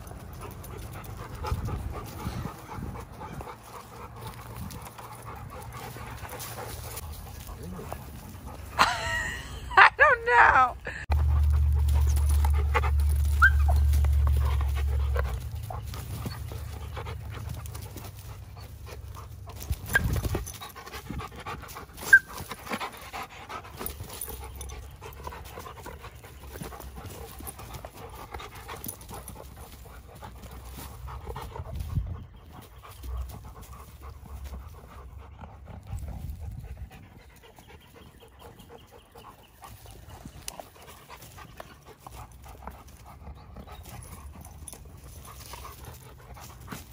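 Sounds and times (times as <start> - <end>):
dogs scuffling on mulch: 0.0 - 9.2, 11.1 - 46.9
dogs panting: 0.0 - 46.9
low rumble: 11.0 - 20.4.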